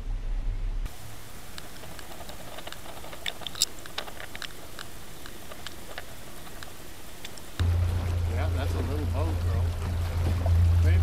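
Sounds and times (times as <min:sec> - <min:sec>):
sharp clicks and ticks: 0:00.9 - 0:07.6.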